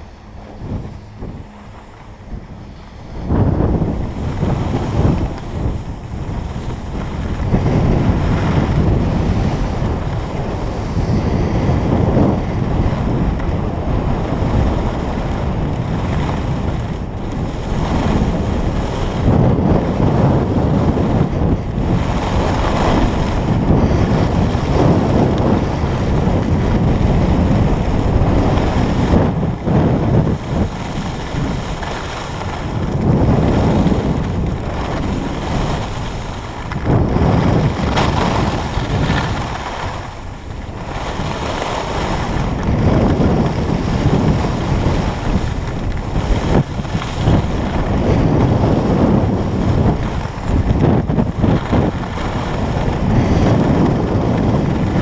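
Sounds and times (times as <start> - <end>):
wind rushing over microphone: 0.0 - 55.0.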